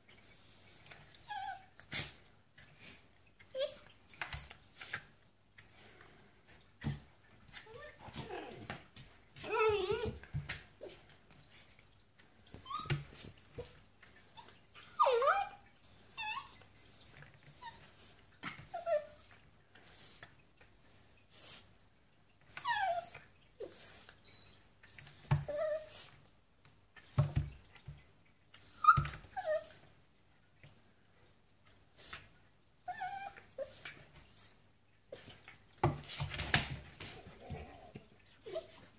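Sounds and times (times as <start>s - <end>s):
dog whining and yipping: 0.1s - 1.8s, 3.5s - 4.7s, 7.6s - 8.7s, 9.4s - 10.2s, 12.5s - 13.7s, 14.3s - 18.0s, 18.6s - 19.2s, 22.5s - 26.0s, 27.0s - 27.6s, 28.6s - 29.8s, 32.8s - 33.8s, 37.4s - 38.9s.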